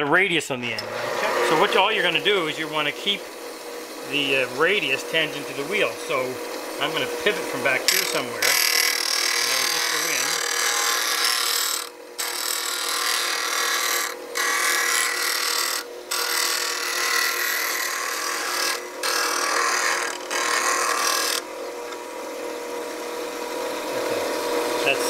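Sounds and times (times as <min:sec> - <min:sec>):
bench grinder humming: 0:00.6 - 0:25.0.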